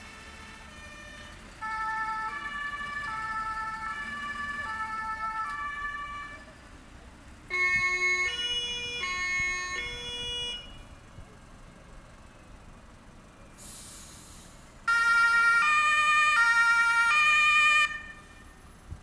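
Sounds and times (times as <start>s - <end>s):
two-tone emergency siren: 0.0s - 6.5s, 7.5s - 10.9s, 14.9s - 18.5s.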